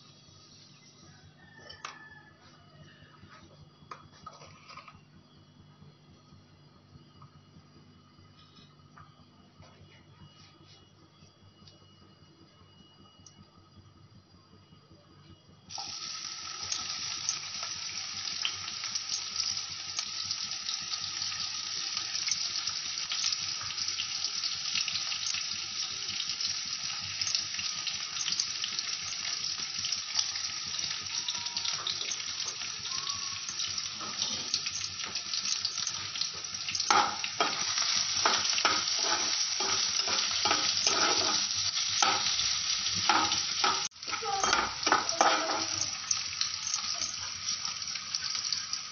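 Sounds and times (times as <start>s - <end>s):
spatula scraping in pan: 4.3s - 5.0s, 34.0s - 46.2s
food sizzling in hot oil: 15.7s - 48.9s.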